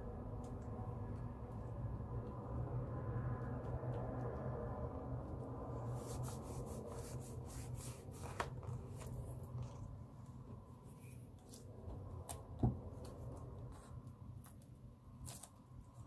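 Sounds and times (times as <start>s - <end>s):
steady low hum: 0.0s - 16.0s
paper rustling: 5.8s - 9.7s.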